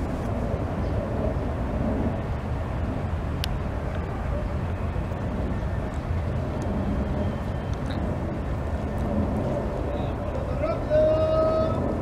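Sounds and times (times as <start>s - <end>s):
distant city traffic rumble: 0.0s - 12.0s.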